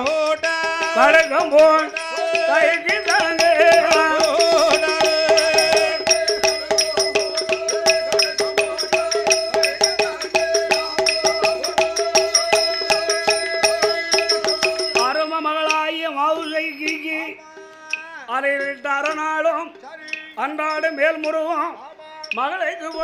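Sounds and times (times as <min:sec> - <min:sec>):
quick percussion strokes: 0:00.0 - 0:21.6
bending melody line: 0:01.2 - 0:18.0
held drone tones: 0:02.9 - 0:15.1.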